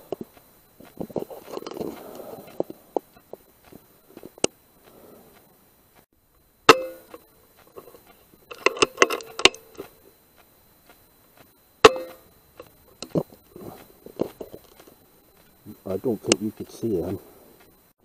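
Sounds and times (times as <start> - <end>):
rifle shots with metallic ring: 6.7 - 7.1.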